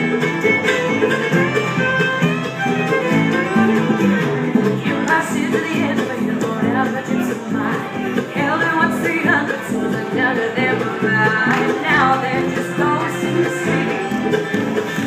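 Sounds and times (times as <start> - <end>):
fiddle: 0.0 - 15.0
mandolin: 0.0 - 15.0
strummed acoustic guitars: 0.0 - 15.0
upright bass: 0.0 - 15.0
woman singing: 4.8 - 14.4.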